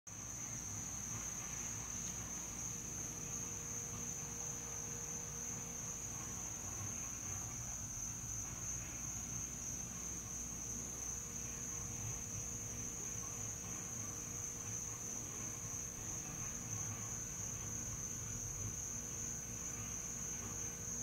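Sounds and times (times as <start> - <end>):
night insects trilling: 0.1 - 21.0.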